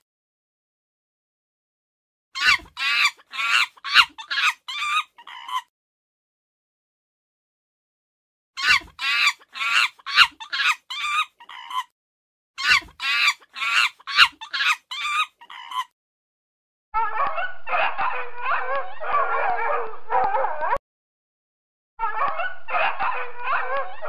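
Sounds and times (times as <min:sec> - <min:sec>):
puppy whimpering and howling: 0:02.4 - 0:05.6, 0:08.6 - 0:11.9, 0:12.6 - 0:15.9, 0:17.0 - 0:20.8, 0:22.0 - 0:24.0
rapid pitched animal calls: 0:02.4 - 0:05.7, 0:08.6 - 0:11.9, 0:12.6 - 0:15.9.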